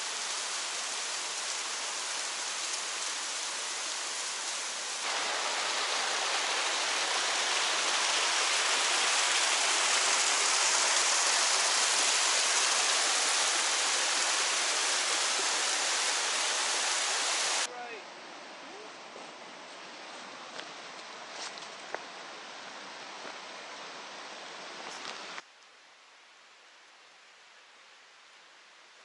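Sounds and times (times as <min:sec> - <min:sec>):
small waterfall rushing: 0:00.0 - 0:18.0.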